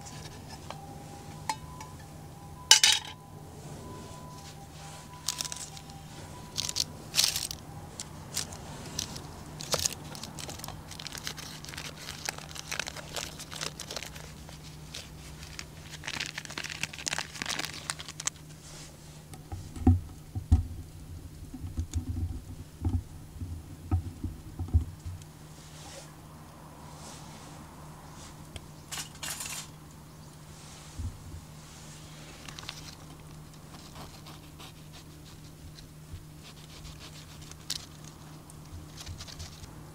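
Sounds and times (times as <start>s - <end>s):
baking paper crinkling and tearing: 5.1s - 18.6s, 32.0s - 39.7s.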